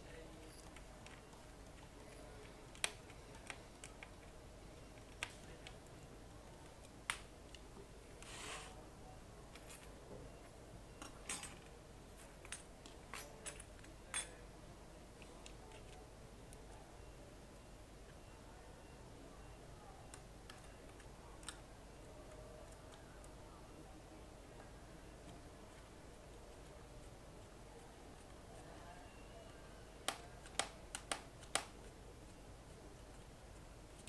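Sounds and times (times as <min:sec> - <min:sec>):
short rustling slide: 0:08.2 - 0:08.8
plastic laptop parts clicking: 0:30.0 - 0:31.8.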